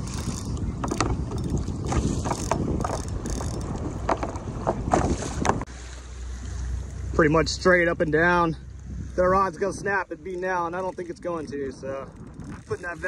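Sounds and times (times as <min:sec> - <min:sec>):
wind buffeting microphone: 0:00.0 - 0:05.7, 0:07.3 - 0:13.0
water slapping against kayak hull: 0:00.0 - 0:06.1.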